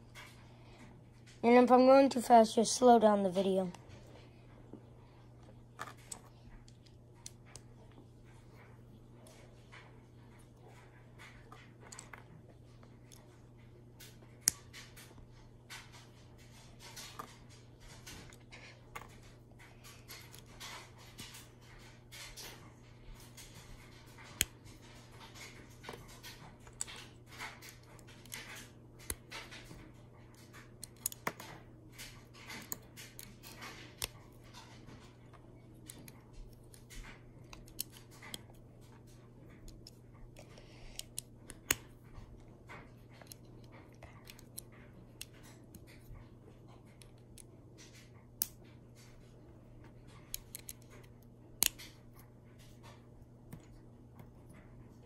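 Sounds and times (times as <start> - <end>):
faint low hum: 0.0 - 55.0
plastic pieces clicking together: 25.4 - 35.0, 50.2 - 52.0.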